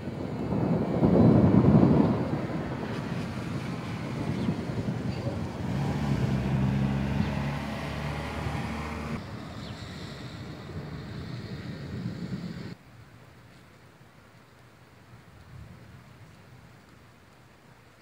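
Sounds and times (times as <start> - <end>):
low engine-like drone: 0.0 - 12.8
wind rumbling on microphone: 0.0 - 12.8
rain: 0.0 - 18.0.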